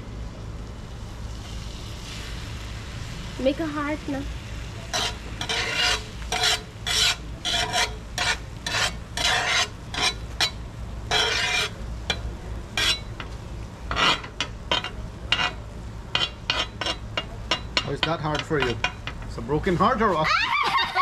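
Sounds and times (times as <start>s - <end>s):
egg sizzling: 0.8s - 21.0s
metal spatula scraping griddle: 4.8s - 20.2s.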